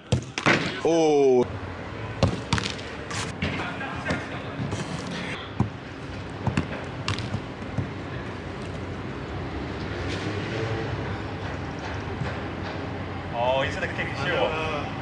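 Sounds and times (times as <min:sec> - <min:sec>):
outdoor background noise: 0:00.0 - 0:15.0
football thudding on turf: 0:02.2 - 0:02.8, 0:05.6 - 0:05.8, 0:06.4 - 0:08.0.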